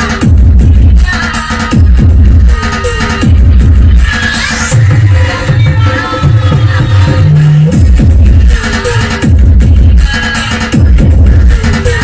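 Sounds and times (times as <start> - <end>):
electronic music with sliding bass: 0.0 - 12.0.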